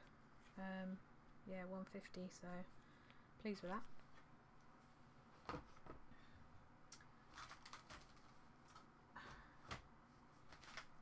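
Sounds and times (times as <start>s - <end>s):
small clicks and rustles: 7.0s - 8.9s.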